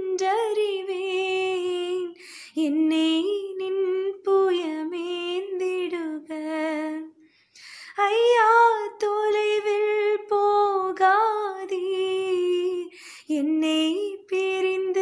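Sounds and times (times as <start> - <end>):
woman singing unaccompanied: 0.0 - 7.2, 7.9 - 15.0.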